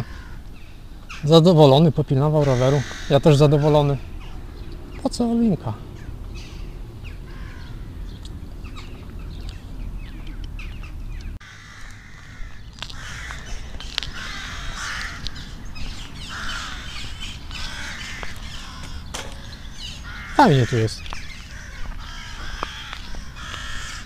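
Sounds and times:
crows cawing: 0.0s - 1.3s, 2.3s - 4.8s, 5.9s - 8.9s, 11.4s - 24.0s
birds chirping: 0.0s - 24.0s
wind rumble on microphone: 2.8s - 20.4s.

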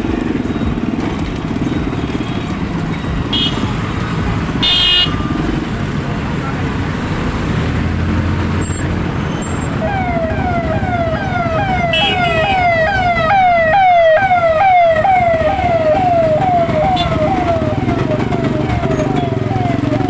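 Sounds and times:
road traffic rumble: 0.0s - 20.0s
electronic siren wailing: 9.4s - 20.0s.

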